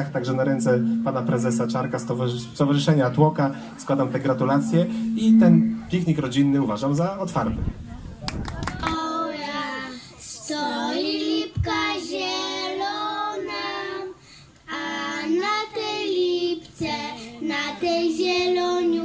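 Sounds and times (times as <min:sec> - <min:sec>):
girls singing unaccompanied: 0:08.9 - 0:19.0.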